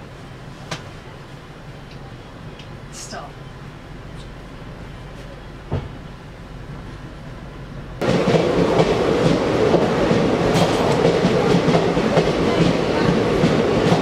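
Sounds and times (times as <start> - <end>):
train coaches rumbling and clattering: 0.0 - 14.0
brief knock: 5.7 - 6.0.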